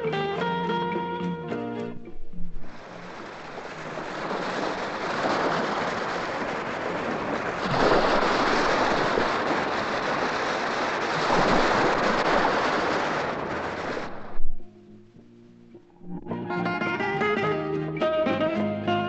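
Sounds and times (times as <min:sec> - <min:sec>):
surf washing up a beach: 0:01.9 - 0:14.7.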